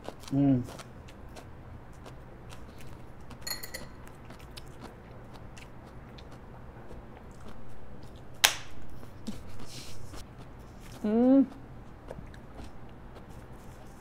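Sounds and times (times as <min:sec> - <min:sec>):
chewing: 0:00.0 - 0:03.4, 0:04.0 - 0:08.4, 0:09.0 - 0:14.0
dishes and cutlery clicking: 0:03.4 - 0:04.0
ringing clink: 0:03.4 - 0:04.0
high-five palm slap: 0:08.4 - 0:08.7.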